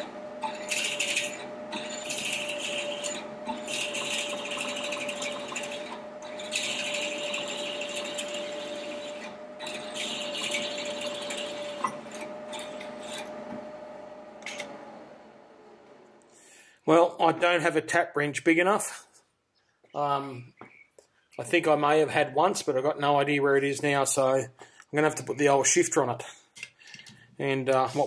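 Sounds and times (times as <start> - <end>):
drill scraping and crunching metal: 0.0 - 15.0
milling machine spindle whine: 0.0 - 16.2.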